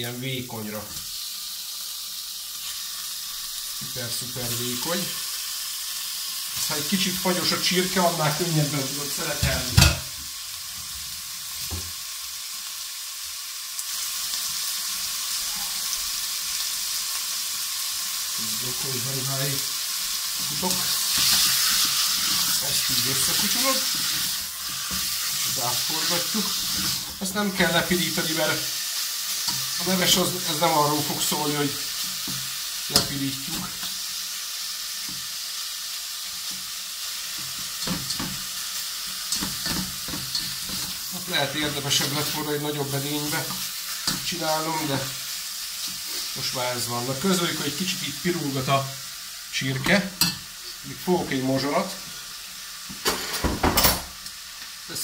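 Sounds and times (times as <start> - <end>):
chicken sizzling in oil: 0.0 - 55.0
spatula scraping pot: 20.4 - 27.3.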